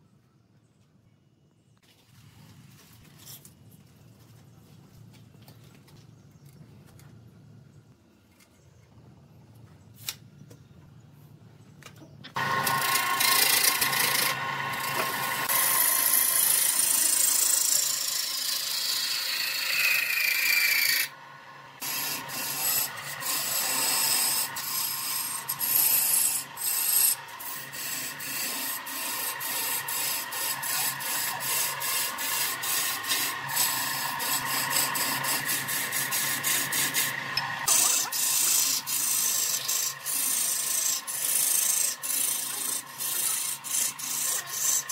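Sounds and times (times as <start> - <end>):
lathe motor hum: 12.4 - 44.9
turning tool cutting wood: 12.4 - 44.9.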